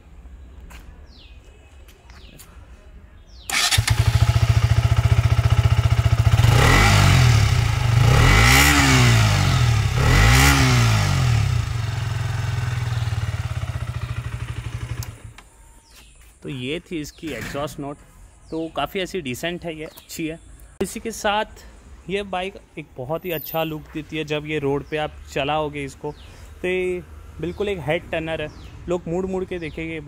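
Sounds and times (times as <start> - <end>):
motorcycle engine idling and revving: 3.5 - 15.5.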